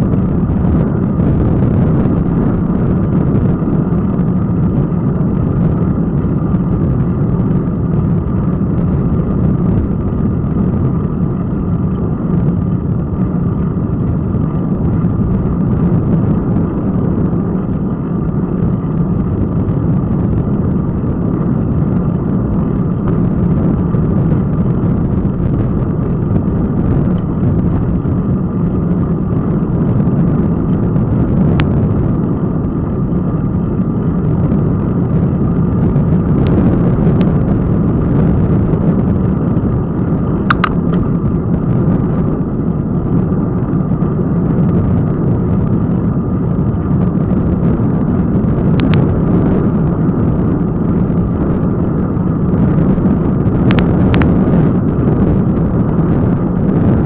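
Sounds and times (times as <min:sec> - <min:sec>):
wind and road noise rumble: 0:00.0 - 0:57.0
sharp click: 0:40.5 - 0:41.0.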